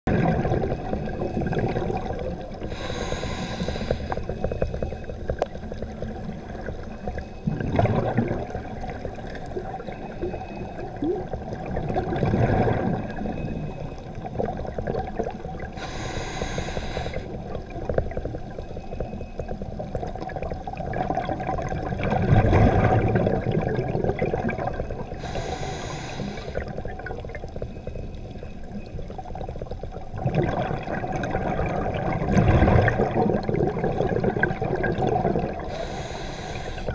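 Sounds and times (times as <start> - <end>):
exhaled air bubbling: 0.1 - 36.9
underwater low rushing: 0.1 - 36.9
high hisses of inhaled air: 2.7 - 4.3, 15.8 - 17.3, 25.2 - 26.6, 35.7 - 36.9.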